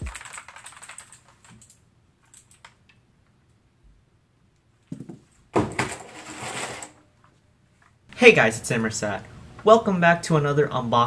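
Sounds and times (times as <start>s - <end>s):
keyboard keys clicking: 0.0s - 2.8s.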